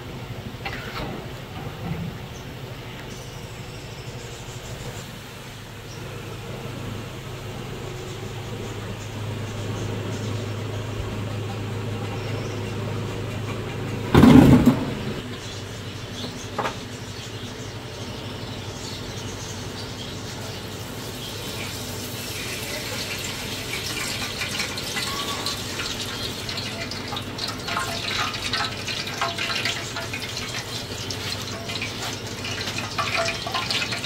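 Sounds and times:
loud thump: 0:14.1 - 0:15.0
liquid pouring into metal pot: 0:23.0 - 0:34.0.

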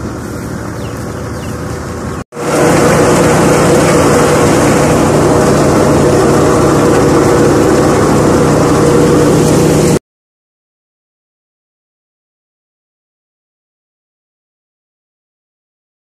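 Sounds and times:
dense rushing noise: 0:00.0 - 0:10.0
farm machinery engine hum: 0:00.0 - 0:10.0.

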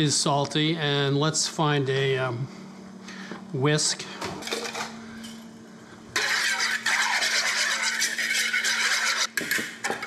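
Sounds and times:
wire whisk scraping bowl: 0:06.2 - 0:10.0.

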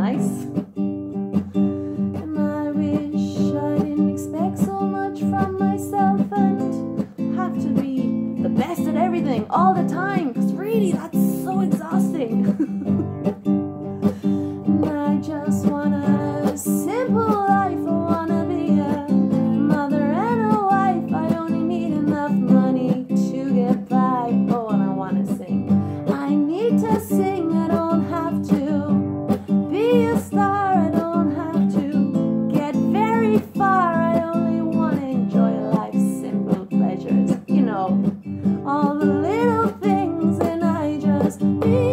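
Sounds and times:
woman singing: 0:00.0 - 0:00.7, 0:02.0 - 0:13.4, 0:14.0 - 0:41.9
acoustic guitar strumming: 0:00.0 - 0:41.9.

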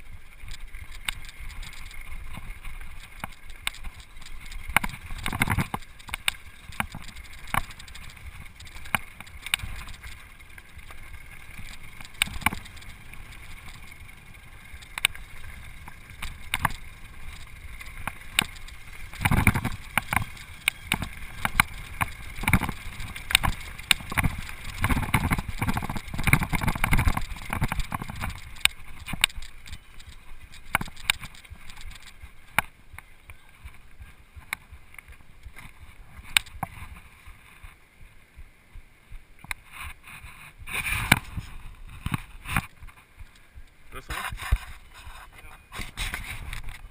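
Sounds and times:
rushing wind noise: 0:00.0 - 0:32.9
tyres crunching on gravel: 0:00.0 - 0:37.8
mountain bike rattling: 0:00.0 - 0:37.9, 0:39.5 - 0:46.9.

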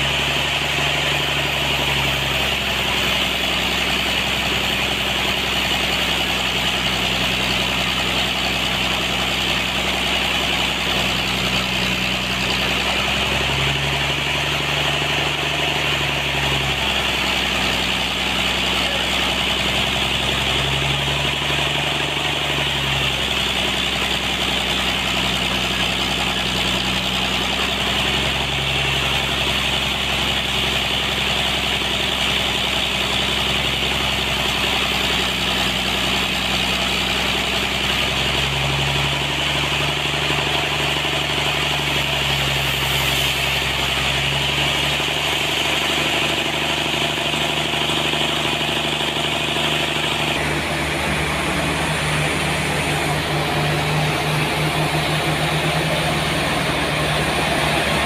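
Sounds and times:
sawmill engine hum: 0:00.0 - 0:58.0
deeper machine tone rising: 0:48.4 - 0:58.0.

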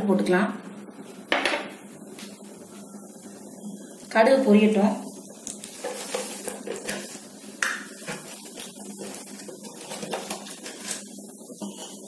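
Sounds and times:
oil sizzling: 0:05.0 - 0:12.0.

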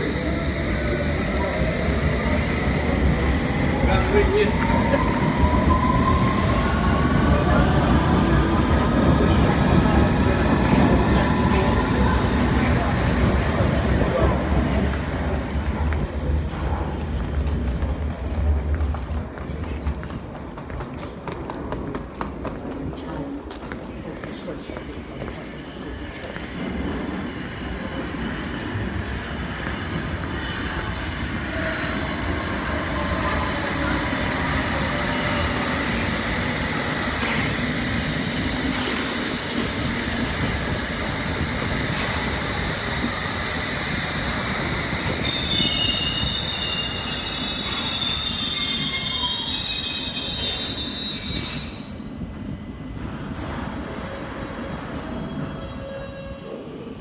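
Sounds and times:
train wheels rumbling on rail: 0:00.0 - 0:57.0
brake and wheel squeals: 0:45.2 - 0:52.0.

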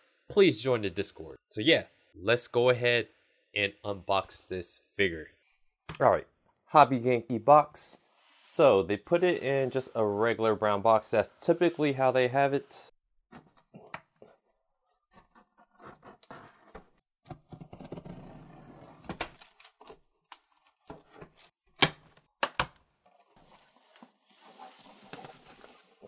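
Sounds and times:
cardboard and paper rustling: 0:23.1 - 0:26.0.

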